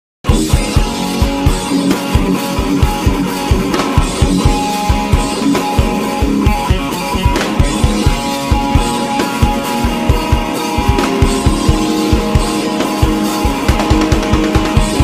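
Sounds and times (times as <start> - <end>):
rock music with guitar and drums: 0.2 - 15.0.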